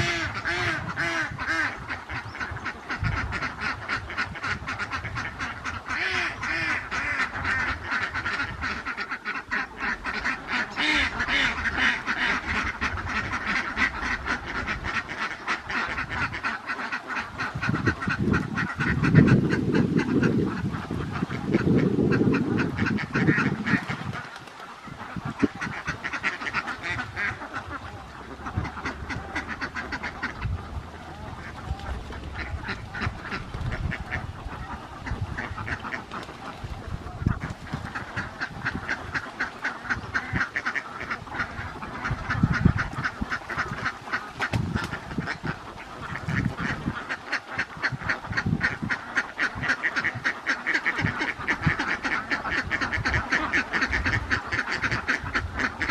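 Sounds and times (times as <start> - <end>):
ducks quacking: 0.0 - 55.9.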